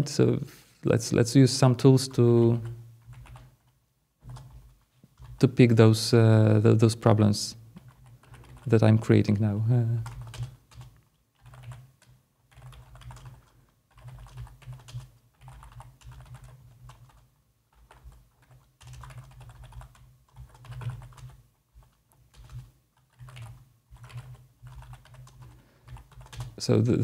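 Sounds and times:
computer keyboard typing: 2.5 - 5.5, 7.8 - 8.8, 10.0 - 26.6.

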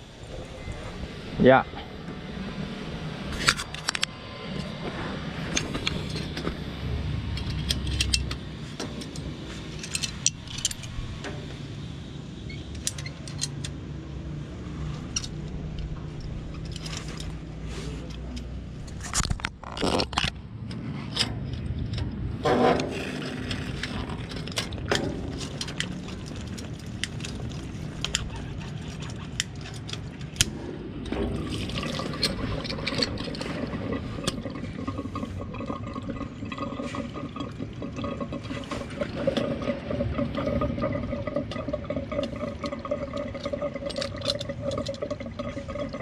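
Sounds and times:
hands clicking and scraping pipes: 7.4 - 11.6, 12.5 - 13.8, 14.9 - 46.0.

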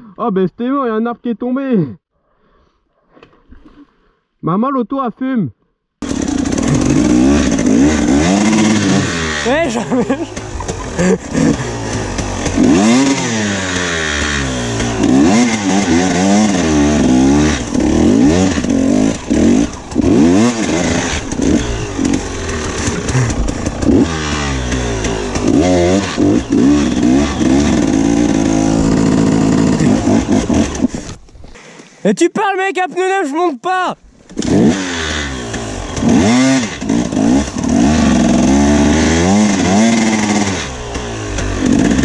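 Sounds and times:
dirt bike engine revving: 6.0 - 31.2, 34.3 - 42.0.

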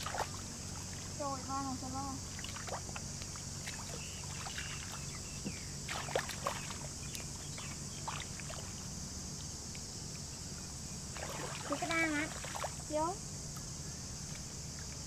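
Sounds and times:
hands splashing in muddy water: 2.4 - 5.1, 5.8 - 7.3.

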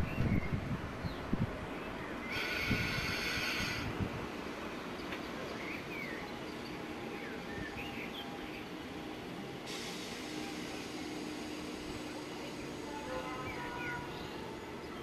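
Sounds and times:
electric train humming: 0.7 - 15.0
train brakes squealing: 2.3 - 3.9, 9.4 - 14.4.

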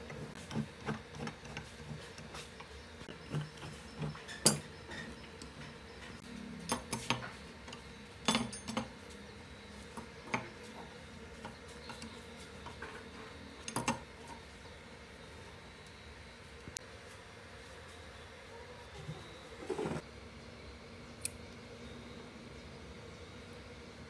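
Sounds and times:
wrench clinking on metal housing: 8.2 - 8.9.

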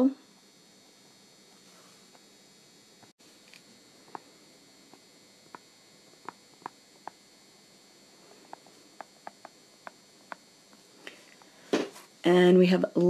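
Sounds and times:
faint hiss and electronic whine: 0.0 - 13.0
stylus tapping on tablet screen: 6.2 - 7.2, 8.5 - 10.4.

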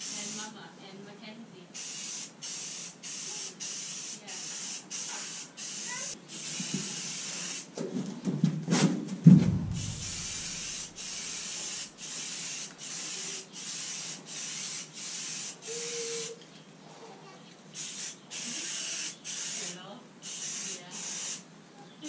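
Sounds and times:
aerosol spray can hissing: 0.0 - 0.5, 1.8 - 7.7, 9.8 - 16.4, 17.8 - 21.4
heavy thumps: 7.8 - 10.7.

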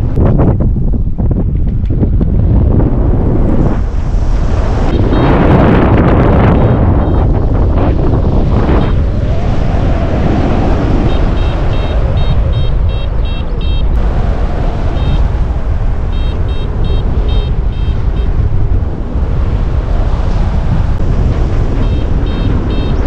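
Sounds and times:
wind rushing over microphone: 0.0 - 23.0
variometer beeping: 6.5 - 7.4, 11.0 - 14.0, 16.1 - 18.4, 21.8 - 23.0.

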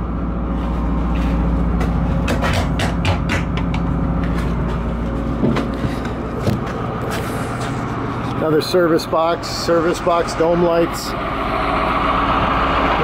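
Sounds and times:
vehicle engine idling: 0.0 - 13.0
knocks and footfalls: 1.1 - 7.8.

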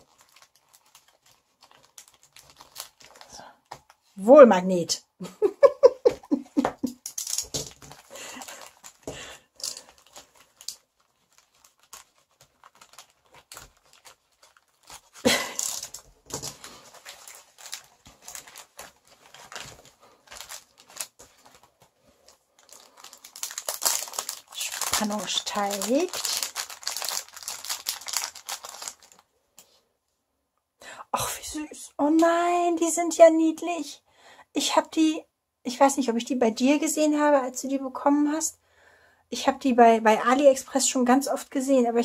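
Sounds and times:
packet crinkling and rustling: 0.0 - 4.2, 6.9 - 29.8.

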